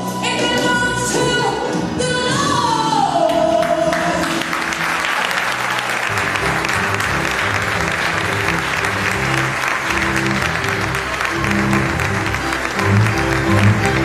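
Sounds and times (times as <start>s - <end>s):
music with singing: 0.0s - 5.6s
audience applause: 3.6s - 14.0s.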